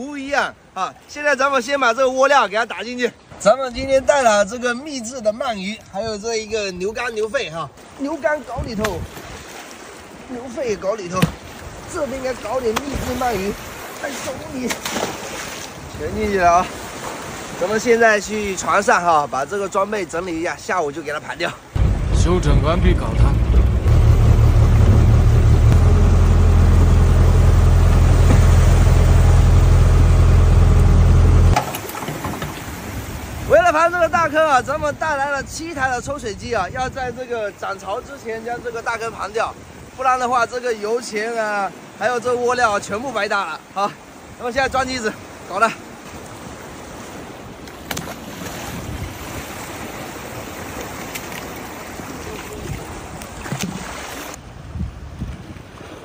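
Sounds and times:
water lapping: 0.0s - 54.5s
wind buffeting microphone: 8.4s - 9.4s, 21.8s - 31.6s, 32.6s - 40.0s, 48.2s - 56.0s
hose splashing into water: 11.2s - 15.7s, 31.5s - 33.2s
boat engine humming: 21.8s - 33.5s.

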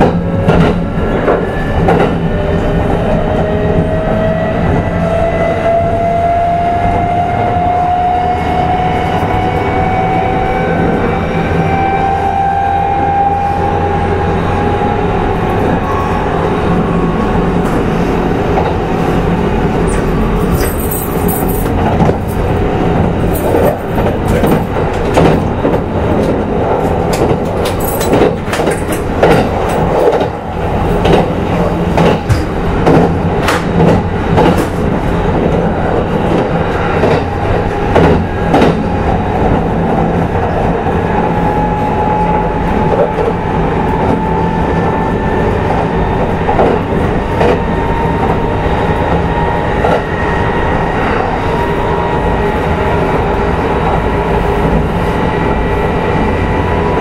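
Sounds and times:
train rolling noise: 0.0s - 57.0s
wheels clacking over rail joints: 23.2s - 35.6s.

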